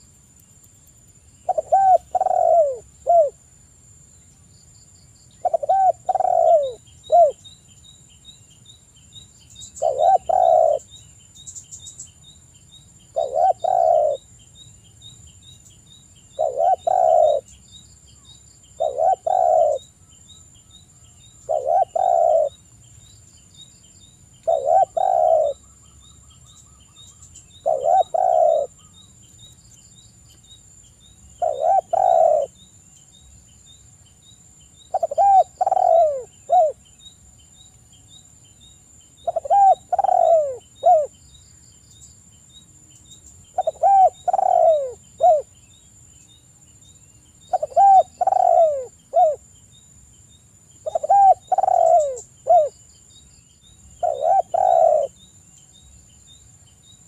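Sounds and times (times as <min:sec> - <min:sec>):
dove cooing: 0:01.4 - 0:03.4, 0:05.4 - 0:07.4, 0:09.8 - 0:10.9, 0:13.1 - 0:14.3, 0:16.4 - 0:17.5, 0:18.8 - 0:19.9, 0:21.4 - 0:22.6, 0:24.4 - 0:25.6, 0:27.6 - 0:28.8, 0:31.4 - 0:32.6, 0:34.9 - 0:36.8, 0:39.2 - 0:41.1, 0:43.6 - 0:45.5, 0:47.5 - 0:49.4, 0:50.9 - 0:52.7, 0:54.0 - 0:55.2.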